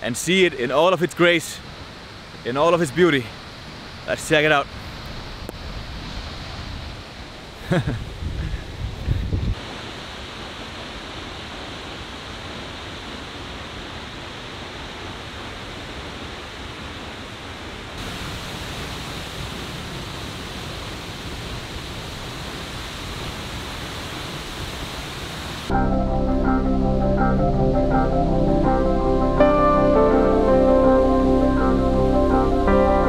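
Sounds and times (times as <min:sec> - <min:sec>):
waterfall rushing: 0:09.6 - 0:25.9.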